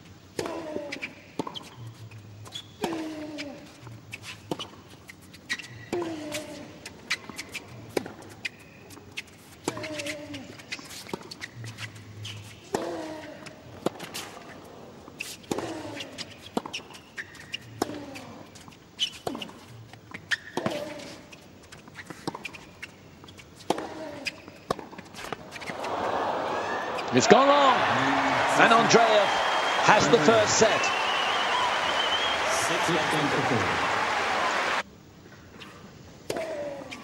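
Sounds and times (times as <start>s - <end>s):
racquets hitting tennis ball: 23.6s - 34.8s
player grunting: 27.8s - 28.6s.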